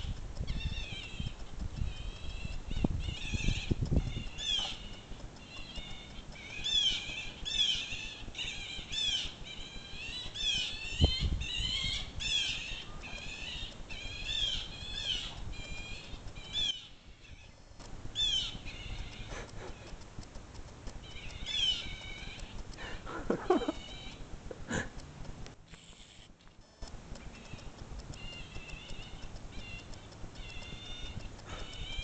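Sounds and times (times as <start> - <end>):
blue jays calling: 0.5 - 17.6, 18.2 - 20.0, 21.0 - 24.3.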